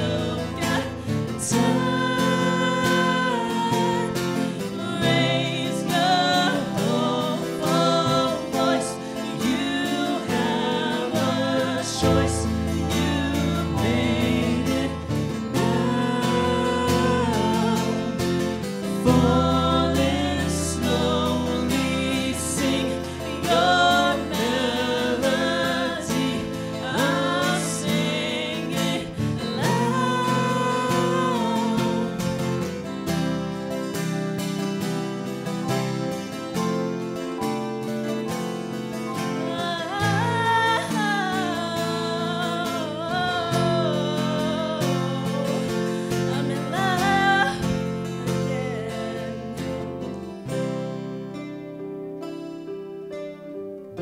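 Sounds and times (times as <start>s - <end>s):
woman singing with vibrato: 0.0s - 33.0s, 39.1s - 50.1s
deep held bass notes: 0.0s - 34.8s
keyboard: 0.0s - 54.0s
strummed guitars: 0.0s - 54.0s.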